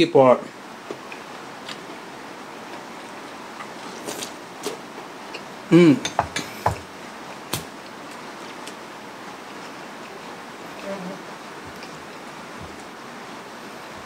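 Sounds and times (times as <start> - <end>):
man chewing food: 0.8 - 13.3
man humming mmm: 5.7 - 6.6.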